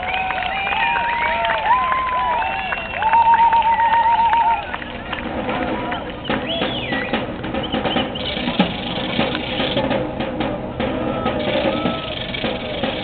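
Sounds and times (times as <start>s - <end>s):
drum and percussion music: 3.0s - 13.0s.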